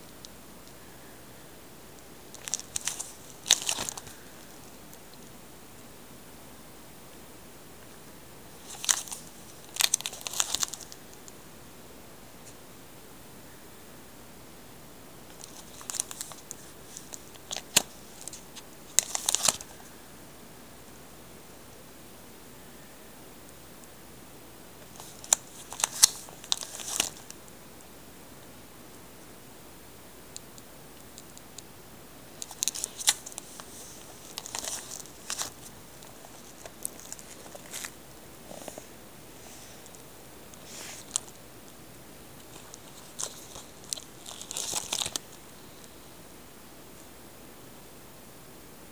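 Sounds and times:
cd case clicks and rustles: 2.3 - 4.2, 8.6 - 11.2, 15.3 - 19.8, 24.8 - 27.4, 32.4 - 38.8, 42.4 - 45.3
plastic sleeves crinkling: 2.3 - 4.7, 8.6 - 11.2, 15.3 - 19.8, 24.8 - 27.4, 32.4 - 41.4, 42.4 - 45.4
cd case clicks: 24.9 - 27.2.

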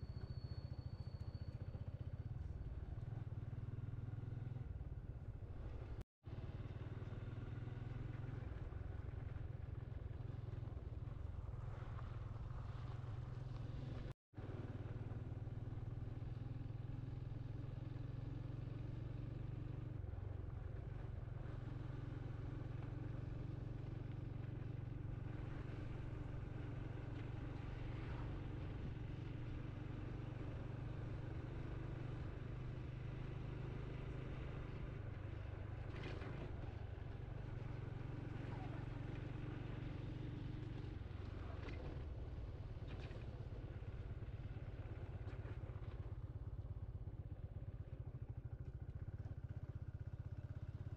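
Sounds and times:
motorcycle engine cruising: 0.0 - 50.9.

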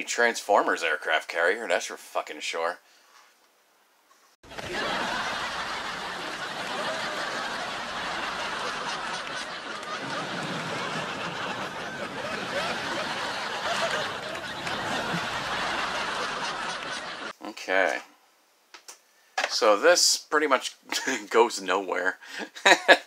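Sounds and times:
crowd laughing: 4.4 - 17.4.

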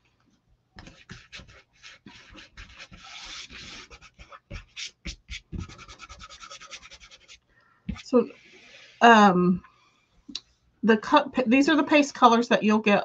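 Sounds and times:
tape tearing and rubbing: 0.8 - 7.4.

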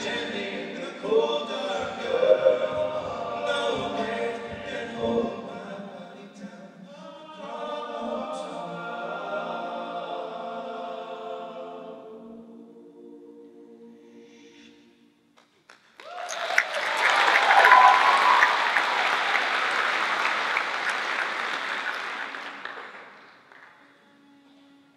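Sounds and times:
men singing a cappella harmony: 0.0 - 14.9.

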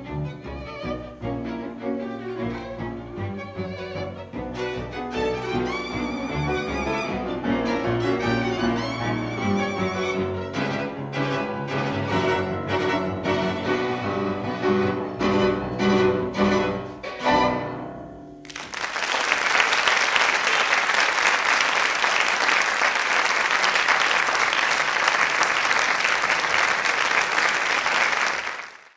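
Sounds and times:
tango ensemble playing: 0.0 - 18.5
audience applause: 18.4 - 28.9.

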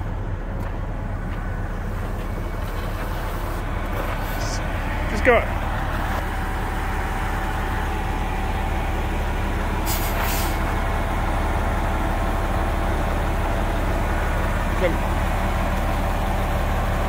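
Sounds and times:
diesel engine running: 0.0 - 17.0
short hisses: 3.4 - 4.6, 9.9 - 10.6.

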